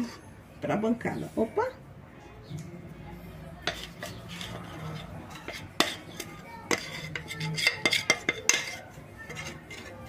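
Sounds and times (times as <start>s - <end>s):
spoon scraping glass bowl: 3.7s - 10.0s.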